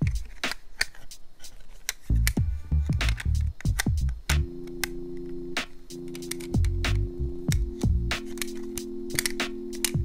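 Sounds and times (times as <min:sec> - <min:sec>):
electronic drum beat: 0:02.4 - 0:04.6, 0:05.5 - 0:10.0.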